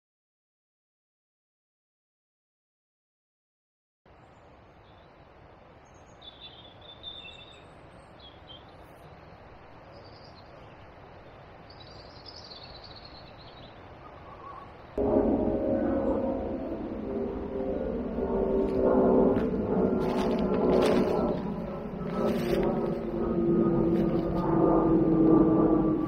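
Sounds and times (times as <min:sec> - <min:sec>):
outdoor background hiss: 0:04.1 - 0:15.0
birds chirping: 0:04.2 - 0:26.0.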